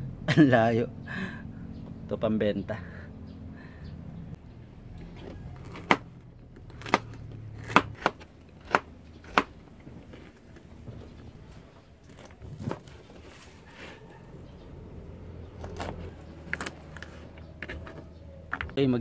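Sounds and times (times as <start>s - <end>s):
knife chopping on cutting board: 5.6s - 6.1s, 6.8s - 9.6s.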